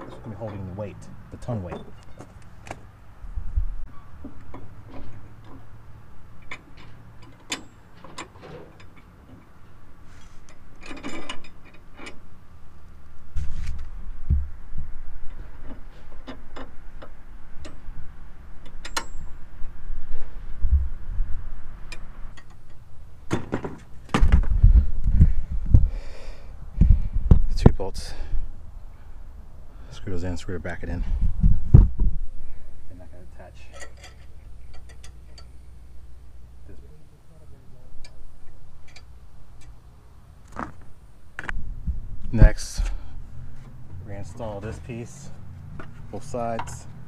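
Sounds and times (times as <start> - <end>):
heavy low thumps: 3.3 - 3.9, 20.5 - 21.6, 24.2 - 27.8, 31.0 - 32.4, 41.6 - 42.4
metallic clicks of hand tools: 33.7 - 35.6.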